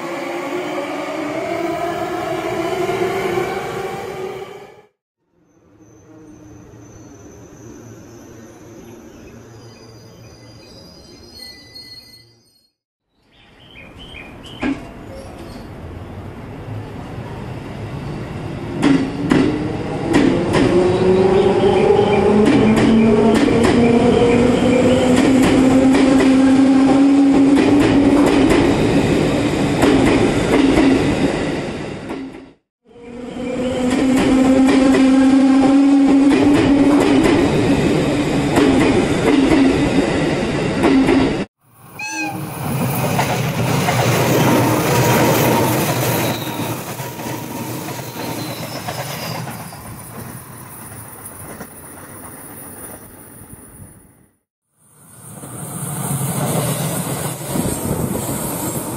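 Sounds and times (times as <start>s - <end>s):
thin squeal of train: 5.4s - 12.8s, 13.7s - 15.8s, 41.9s - 42.6s, 45.4s - 54.2s
train wheels clickety-clack: 18.8s - 20.8s, 22.4s - 24.0s, 42.6s - 53.1s.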